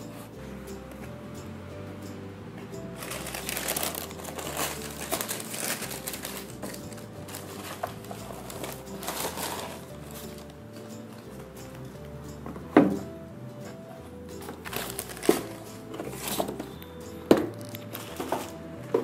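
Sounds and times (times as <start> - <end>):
tissue paper rustling and crinkling: 3.0 - 10.5, 14.4 - 16.8.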